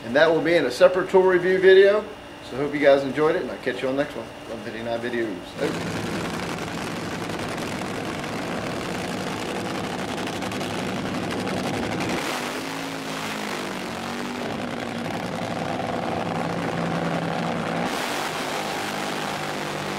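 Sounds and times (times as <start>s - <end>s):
drag racing car engines running: 5.6s - 19.9s.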